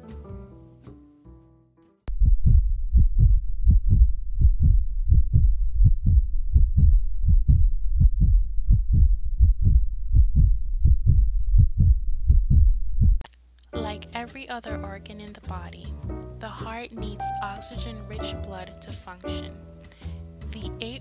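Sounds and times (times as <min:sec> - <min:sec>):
heartbeat thumps: 0:02.1 - 0:13.2.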